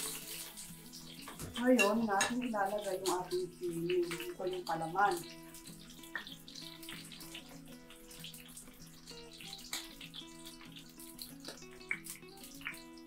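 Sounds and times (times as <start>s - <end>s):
background music: 0.0s - 13.0s
vegetables sizzling in oil: 0.0s - 13.0s
spoon clicking against pan: 1.1s - 4.6s, 9.3s - 12.8s.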